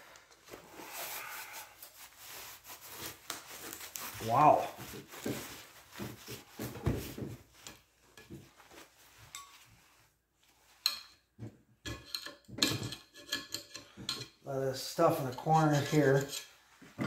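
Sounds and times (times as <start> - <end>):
paper towels wiping metal: 0.6 - 6.7.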